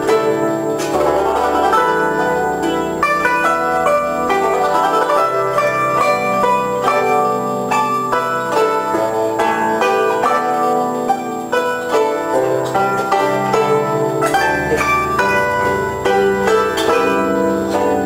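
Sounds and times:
plucked-string background music: 0.0 - 18.0.

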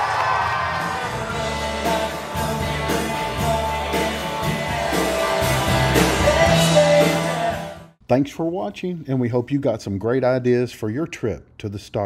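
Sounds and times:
band music with singer: 0.6 - 7.9.

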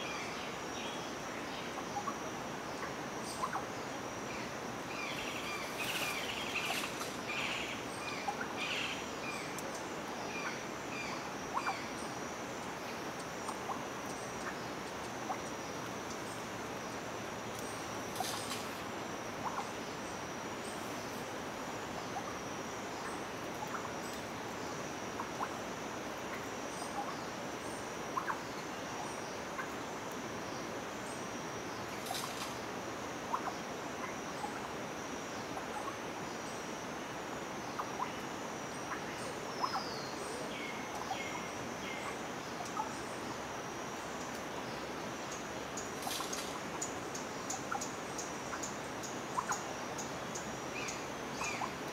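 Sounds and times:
high insect drone: 0.0 - 51.9
faint ticks: 13.2 - 16.4, 17.5 - 18.8, 44.2 - 44.5.

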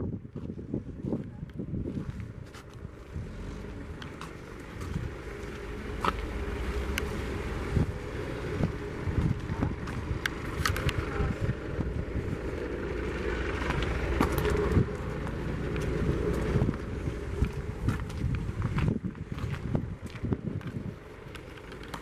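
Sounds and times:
low outdoor rumble: 0.0 - 22.0
footsteps: 1.9 - 7.9, 13.6 - 22.0.

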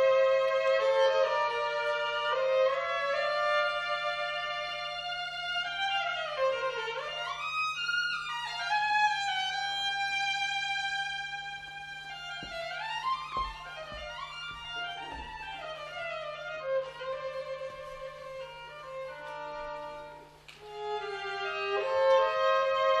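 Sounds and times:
solo violin playing: 0.0 - 23.0
soft low thumps: 12.0 - 20.2.

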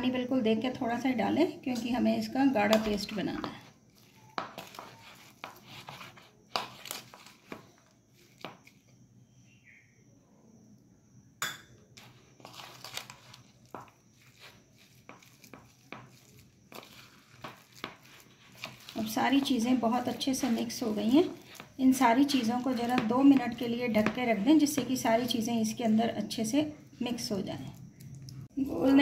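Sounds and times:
spoon scraping and knocking bowl: 4.3 - 7.7, 11.4 - 25.4.

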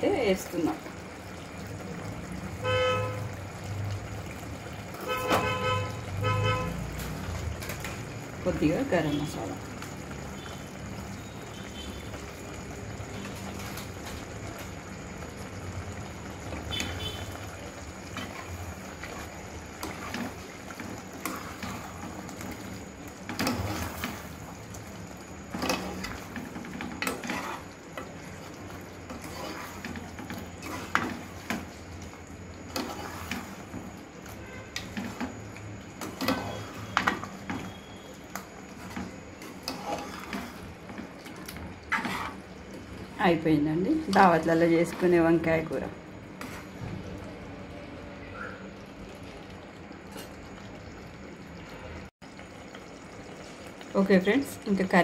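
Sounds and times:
ladle scraping metal pot: 18.1 - 22.6, 23.2 - 24.3, 25.5 - 28.1, 29.0 - 31.6, 32.7 - 33.8, 36.0 - 38.0, 38.8 - 42.5.

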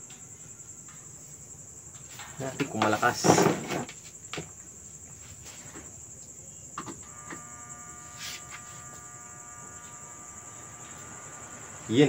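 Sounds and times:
electric fan motor whine: 6.8 - 12.0.

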